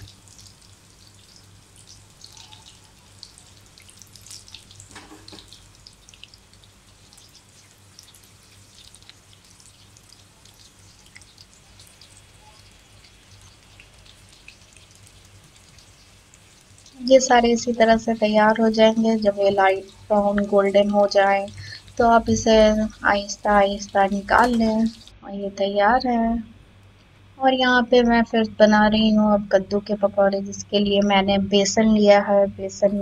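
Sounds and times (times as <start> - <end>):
oil sizzling with crackles: 0.0 - 25.2.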